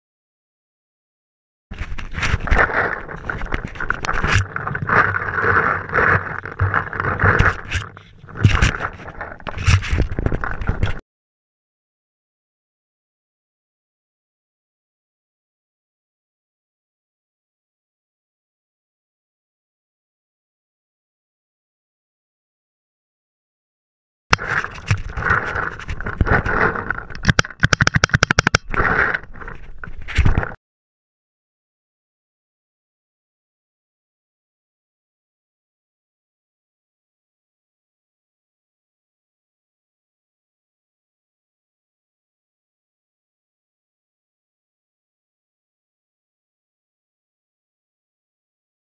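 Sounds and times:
gear rustling and scraping: 0:01.7 - 0:11.0, 0:24.4 - 0:30.6
paintball gun cracks: 0:27.2 - 0:28.7
sharp knocks: 0:27.2 - 0:28.7.

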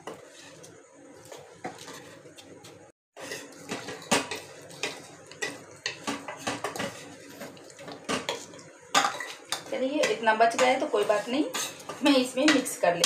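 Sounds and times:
metal spoon scraping a dish: 0:09.2 - 0:12.0.

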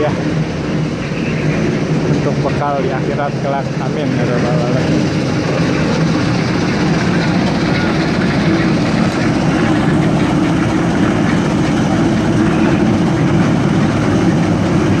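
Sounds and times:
concrete mixer engine running: 0:00.0 - 0:15.0.

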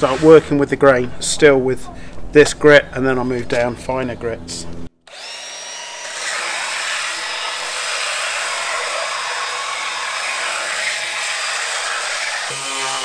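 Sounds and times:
belt sander sanding wood: 0:00.0 - 0:00.6, 0:05.1 - 0:13.0.

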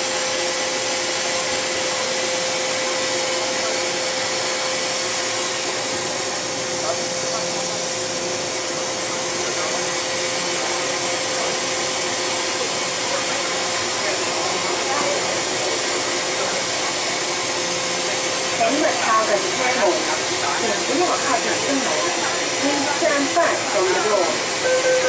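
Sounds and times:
steady tone: 0:17.4 - 0:25.0.

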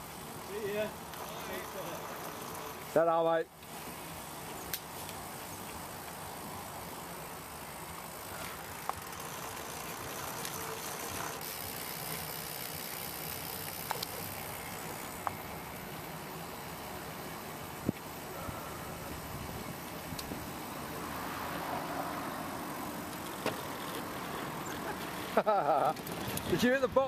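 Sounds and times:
faint sharp clicks: 0:04.7 - 0:05.2.

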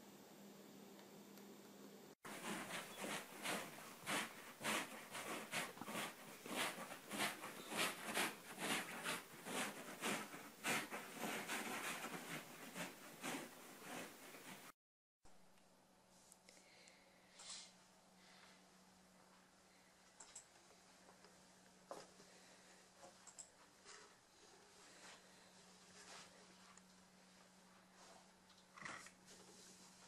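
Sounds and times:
sleeping dog snuffling: 0:02.3 - 0:14.7.

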